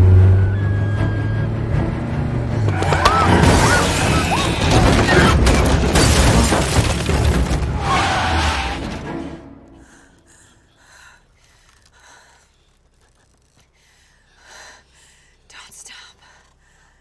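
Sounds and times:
tense music score: 0.0s - 6.0s, 7.1s - 11.8s
heavy crash impacts: 2.8s - 9.4s
windshield glass shattering: 3.2s - 8.2s.

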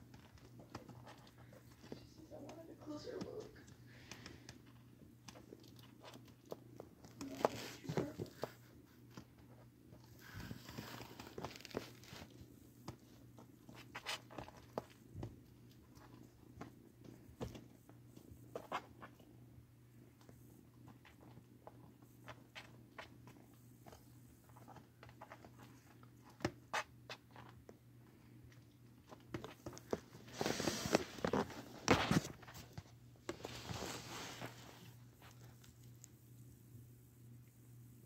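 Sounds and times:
kittens scuffling on cardboard: 0.0s - 19.3s, 28.4s - 36.0s.

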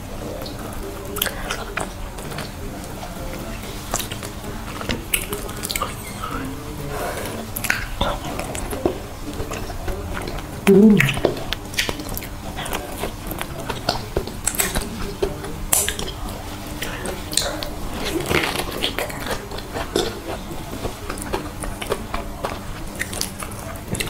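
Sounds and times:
wet chewing sounds: 0.2s - 24.0s
person humming: 10.7s - 11.2s.

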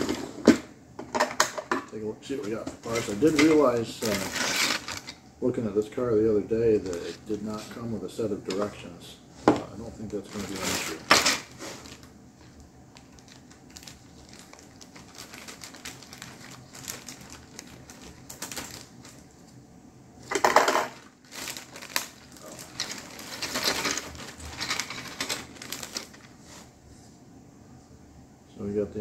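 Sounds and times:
plastic wrapper crinkling: 2.8s - 5.2s, 6.7s - 7.8s, 9.9s - 19.5s, 20.9s - 26.4s.

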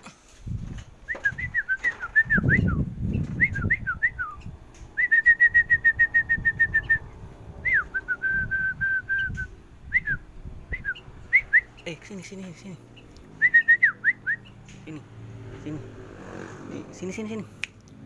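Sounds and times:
bird singing whistled notes: 1.1s - 12.0s, 13.0s - 14.7s.

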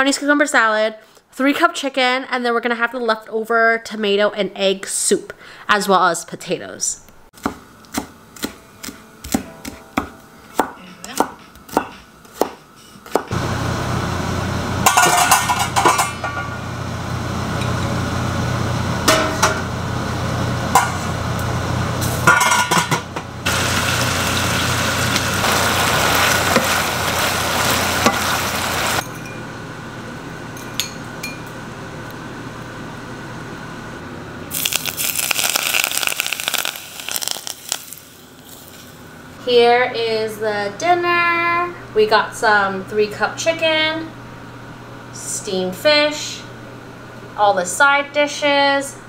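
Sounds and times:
knife chopping on wooden board: 7.4s - 13.3s
gas stove hissing: 13.3s - 29.0s, 34.5s - 39.4s
pots and utensils clinking: 14.8s - 16.6s, 22.2s - 23.1s.

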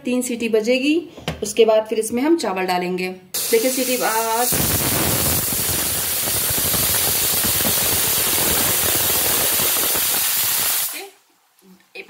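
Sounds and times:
pressure cooker whistling: 3.4s - 10.9s
steam hissing with fluttering rattle: 3.4s - 11.1s.

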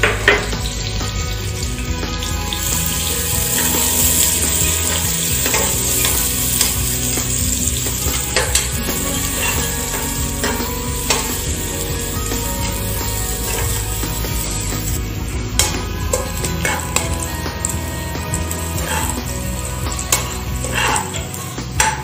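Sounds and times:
onions sizzling: 0.0s - 22.0s
ladle clinking against pot: 8.1s - 11.5s.

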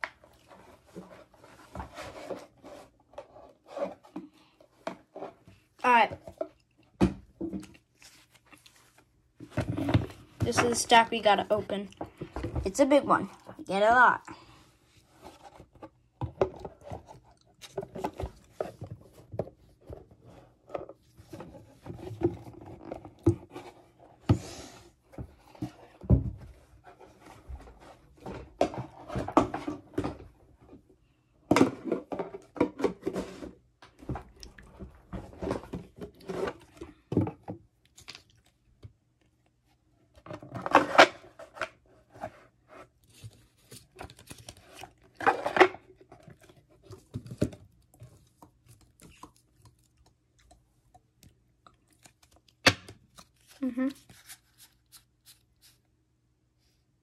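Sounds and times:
cards and wrappers rustling: 40.4s - 50.0s, 51.8s - 55.8s.

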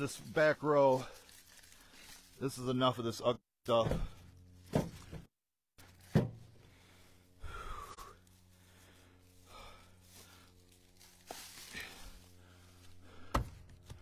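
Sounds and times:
person breathing: 1.0s - 2.3s, 6.6s - 10.8s, 11.4s - 14.0s.

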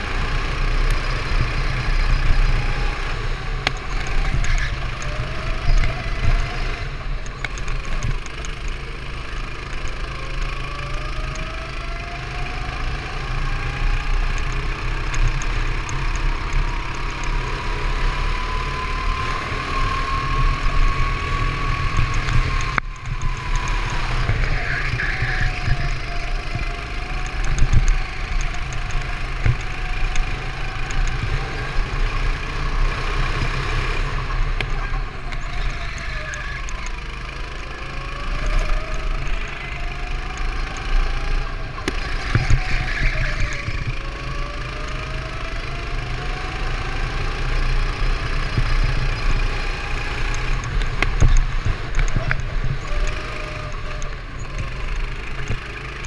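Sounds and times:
go-kart engine revving: 0.0s - 56.0s
wind rumble on microphone: 1.3s - 8.3s, 18.3s - 36.9s, 40.4s - 44.2s, 47.4s - 56.0s.

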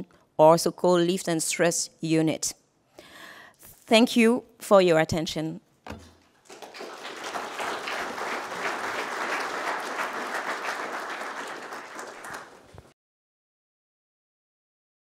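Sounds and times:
audience applauding: 6.4s - 12.9s.

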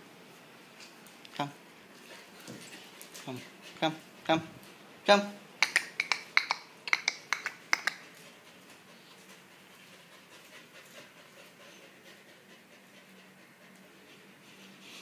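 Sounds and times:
puppy panting faintly: 2.0s - 4.8s, 7.0s - 15.0s.

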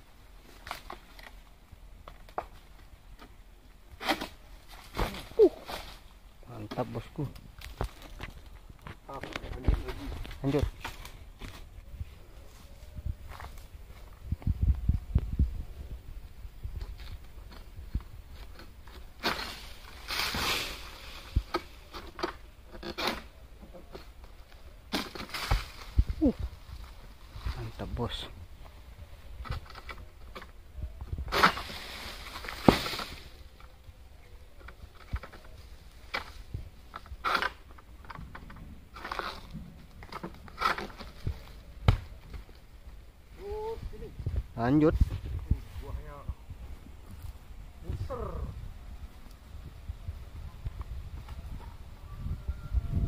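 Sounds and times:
rustling of palm fronds: 0.0s - 53.0s
sickle rasping through palm frond: 19.2s - 23.3s.

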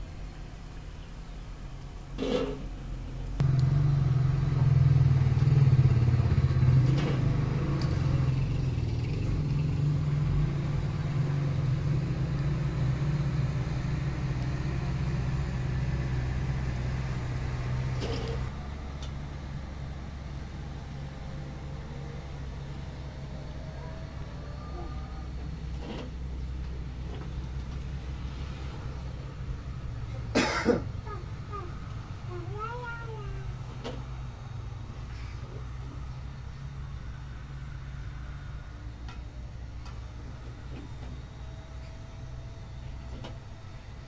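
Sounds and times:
motor humming: 3.4s - 6.0s.

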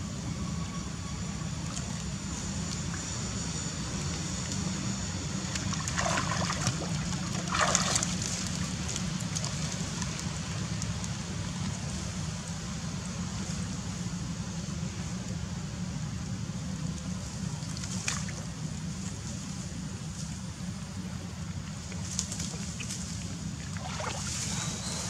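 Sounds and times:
water trickling and sloshing: 5.4s - 12.0s, 21.6s - 25.0s.

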